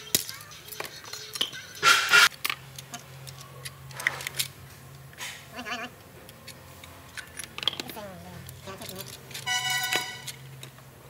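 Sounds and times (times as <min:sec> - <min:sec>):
metal parts clinking: 0:06.3 - 0:10.8.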